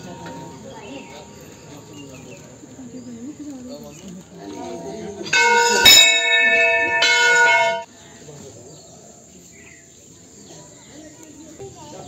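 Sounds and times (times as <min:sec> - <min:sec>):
brass bell ringing: 0:05.3 - 0:07.9.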